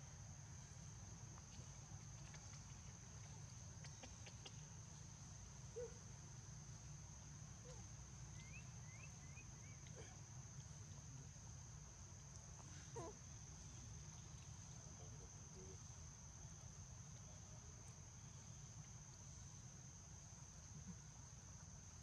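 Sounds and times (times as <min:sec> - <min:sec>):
faint chirps: 0:07.6 - 0:10.9.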